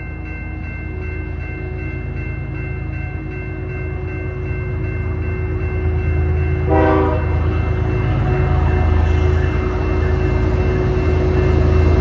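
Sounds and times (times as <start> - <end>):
locomotive engines rumbling: 0.0 - 12.0
train air horn chord: 6.6 - 7.6.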